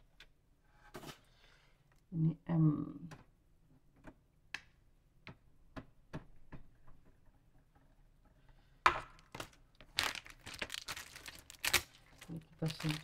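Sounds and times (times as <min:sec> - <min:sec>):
faint clicks and taps: 0:03.0 - 0:08.4
plastic packaging crinkling: 0:09.4 - 0:13.0.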